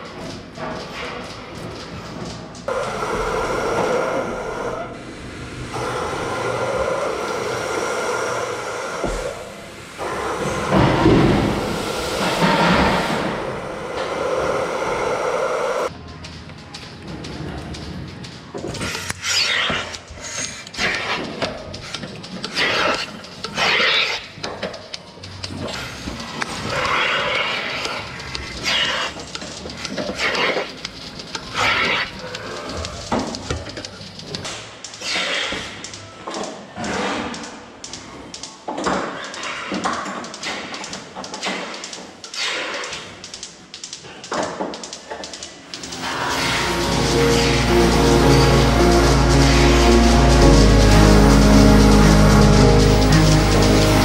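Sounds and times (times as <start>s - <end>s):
milking system hum: 1.9s - 15.9s
hissing air bursts: 5.7s - 15.9s, 45.8s - 54.0s
faint music: 15.8s - 39.2s, 43.1s - 54.0s.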